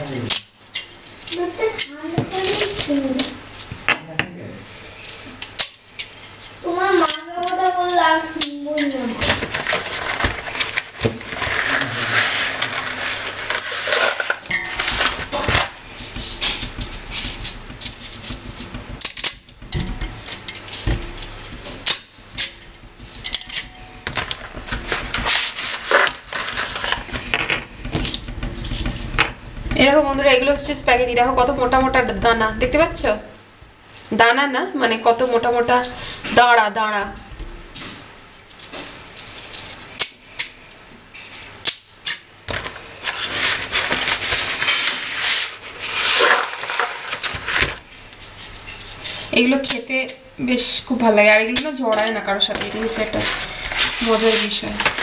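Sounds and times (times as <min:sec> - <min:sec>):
dull knocks: 0:27.0 - 0:32.7.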